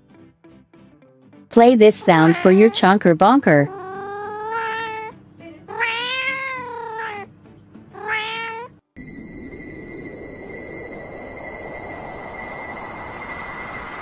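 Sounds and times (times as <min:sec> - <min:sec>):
cat meowing: 0:02.0 - 0:07.3, 0:07.9 - 0:08.7
high-pitched tones: 0:09.0 - 0:14.0.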